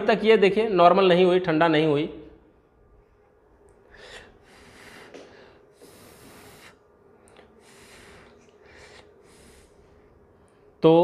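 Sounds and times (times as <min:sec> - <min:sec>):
man breathing: 0:03.7 - 0:10.8.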